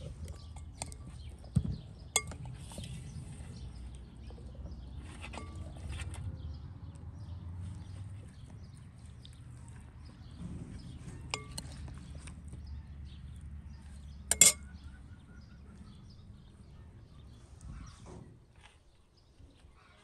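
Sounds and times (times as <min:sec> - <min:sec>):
metal spoon clinking glass bowl: 0:02.2 - 0:02.4, 0:11.3 - 0:11.8, 0:14.3 - 0:14.6
low steady rumble: 0:05.4 - 0:18.1.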